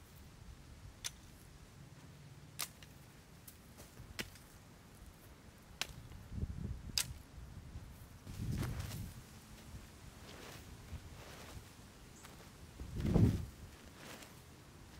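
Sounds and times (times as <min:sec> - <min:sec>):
dry sticks clicking: 0:01.0 - 0:01.3, 0:02.5 - 0:03.6.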